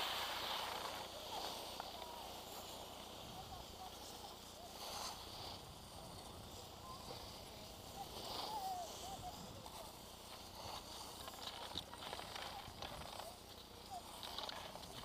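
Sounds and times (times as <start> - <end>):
skis scraping over snow: 0.0 - 15.0.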